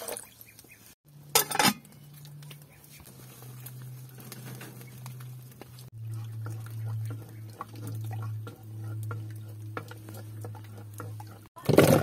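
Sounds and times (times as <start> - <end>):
metal pot lid clanking: 1.3 - 1.8.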